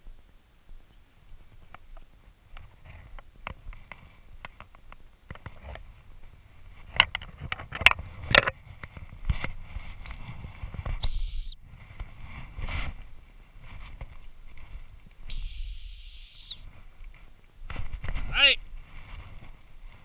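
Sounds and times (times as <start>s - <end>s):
sharp clicks and knocks: 6.9s - 8.9s
high whistle blast: 11.0s - 11.6s, 15.3s - 16.6s.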